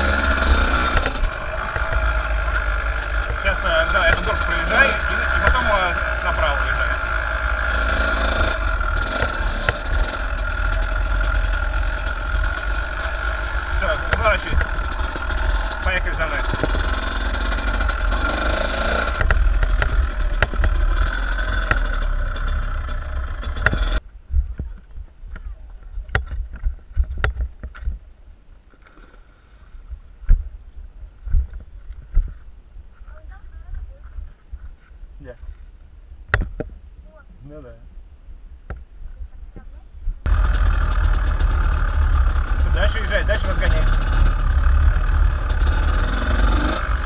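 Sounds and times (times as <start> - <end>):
dirt bike engine running: 0.0 - 24.6, 40.2 - 47.0
wind rumbling on microphone: 24.0 - 28.4, 29.6 - 40.4.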